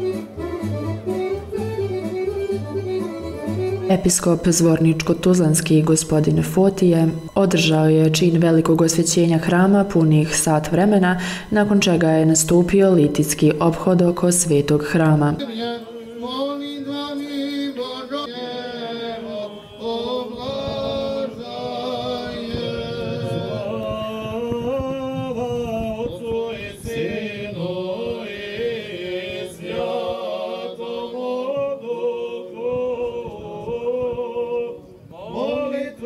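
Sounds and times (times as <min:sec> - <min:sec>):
voices chanting long held notes: 0:15.4 - 0:36.0.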